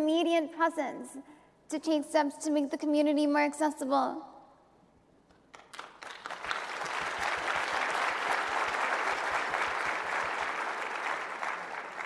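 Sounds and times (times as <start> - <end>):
audience applauding: 5.5 - 12.0.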